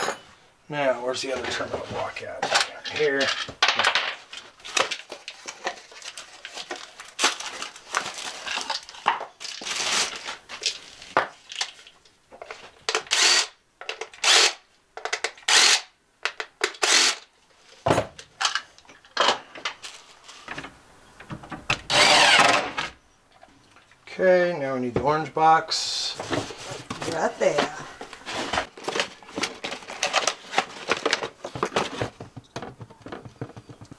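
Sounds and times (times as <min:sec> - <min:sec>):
cordless drill-driver: 0:13.0 - 0:13.5, 0:14.2 - 0:14.6, 0:15.5 - 0:15.9, 0:16.8 - 0:17.2, 0:21.9 - 0:22.6.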